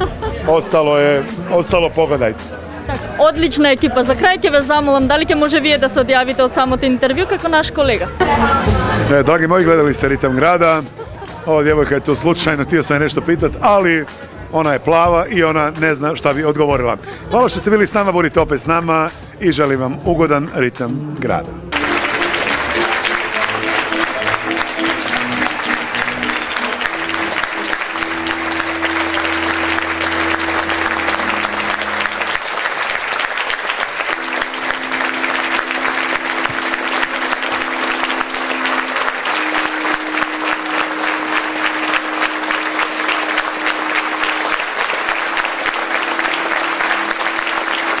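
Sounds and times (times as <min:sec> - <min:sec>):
slow music of long held notes: 0:20.8 - 0:48.0
audience applauding: 0:21.7 - 0:48.0.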